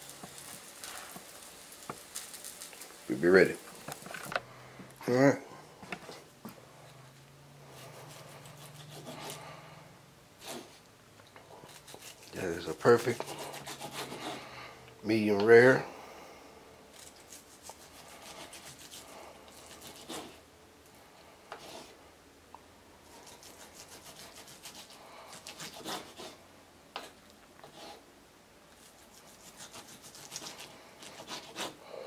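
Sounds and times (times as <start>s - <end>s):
knife sawing through steak: 7.7s - 9.5s, 11.7s - 14.5s, 17.0s - 20.4s, 23.2s - 26.4s, 28.9s - 31.8s.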